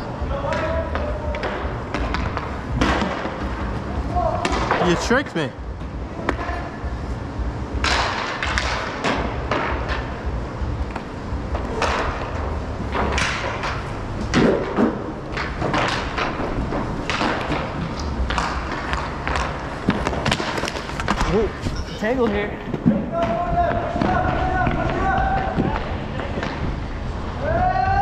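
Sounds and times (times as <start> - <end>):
inline skate wheels rolling: 0.0 - 28.0
sticks and puck knocking: 7.8 - 10.1, 10.9 - 21.5, 22.2 - 26.7.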